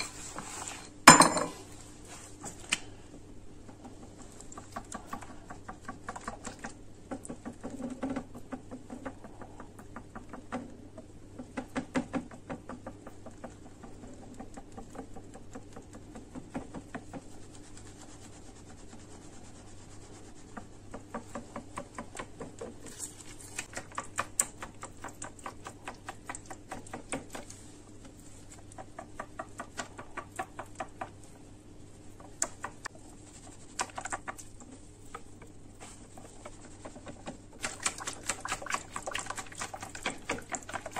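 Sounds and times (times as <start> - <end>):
whisk clicking against glass bowl: 36.5 - 40.9.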